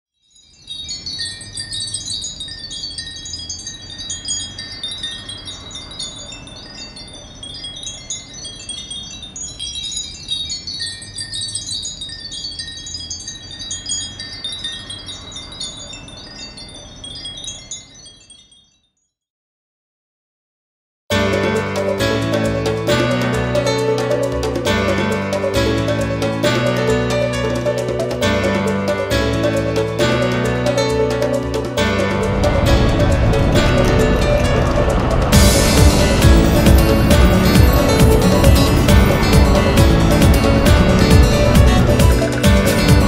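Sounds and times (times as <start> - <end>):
wind chimes tinkling: 0.2 - 19.2, 21.3 - 43.0
low steady rumble: 31.8 - 43.0.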